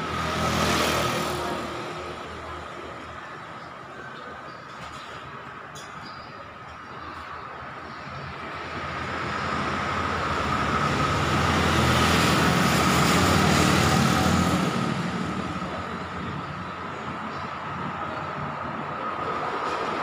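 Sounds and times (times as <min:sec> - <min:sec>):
truck and scooter driving past: 0:00.0 - 0:02.6, 0:08.6 - 0:20.0.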